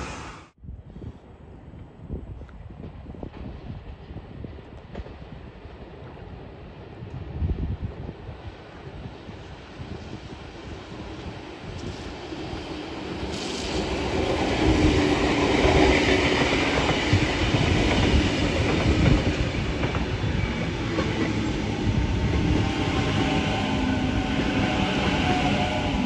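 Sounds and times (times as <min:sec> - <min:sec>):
electric train passing: 0:08.4 - 0:26.0.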